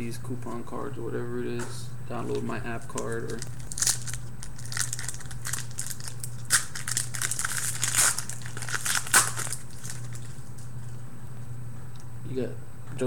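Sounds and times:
foil wrapper crinkling and tearing: 0:02.8 - 0:10.8.

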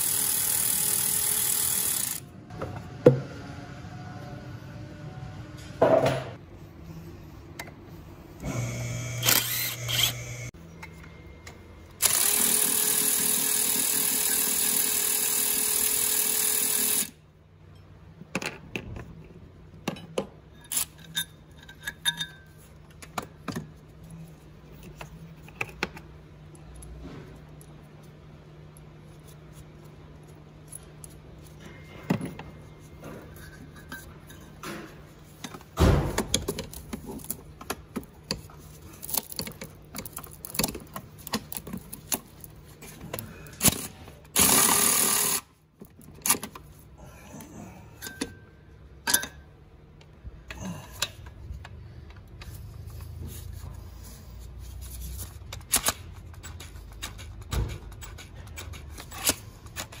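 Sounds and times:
cordless ratchet running: 0:00.0 - 0:02.2, 0:08.6 - 0:10.5, 0:12.0 - 0:17.2, 0:44.4 - 0:45.5.

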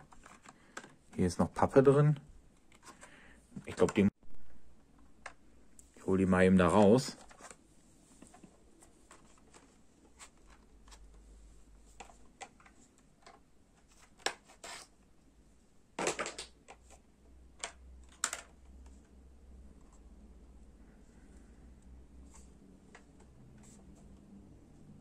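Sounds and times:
plastic toy clicking and rustling: 0:17.6 - 0:18.6.

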